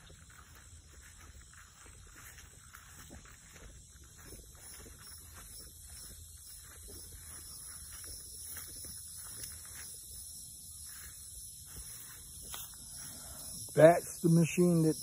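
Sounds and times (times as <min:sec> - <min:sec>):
footsteps on dry leaves: 0:00.0 - 0:15.0
steady high hiss: 0:09.4 - 0:15.0.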